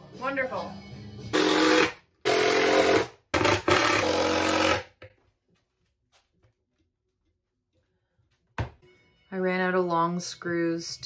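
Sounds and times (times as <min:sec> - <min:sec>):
cordless drill driving screws: 0:01.4 - 0:04.9.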